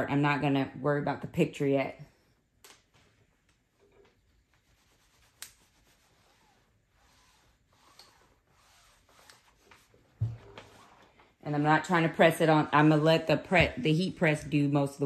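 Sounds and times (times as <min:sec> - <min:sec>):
iron rubbing over sheet: 0:04.1 - 0:14.4.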